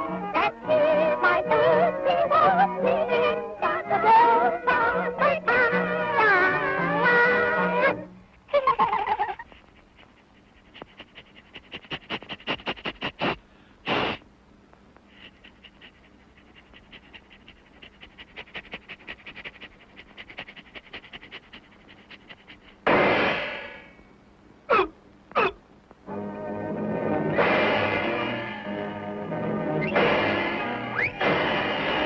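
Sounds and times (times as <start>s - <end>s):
cartoon laughter: 8.5s - 9.6s
cartoon dog sniffing and panting: 8.6s - 14.2s, 15.0s - 22.9s.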